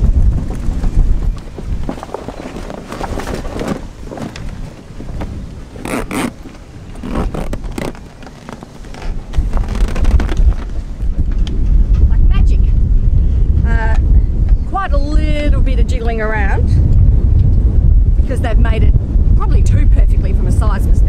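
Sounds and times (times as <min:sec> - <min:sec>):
wind buffeting microphone: 0:00.0 - 0:21.0
fabric bag rustling and scraping: 0:00.6 - 0:11.1.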